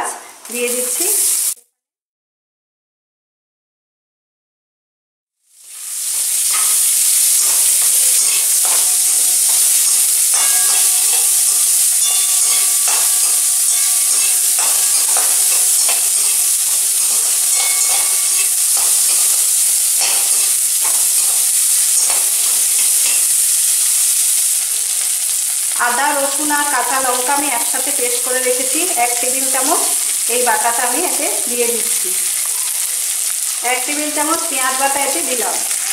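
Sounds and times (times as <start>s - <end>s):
onions sizzling in oil: 0.0s - 1.6s, 5.4s - 35.9s
metal spatula scraping a pan: 5.7s - 25.6s.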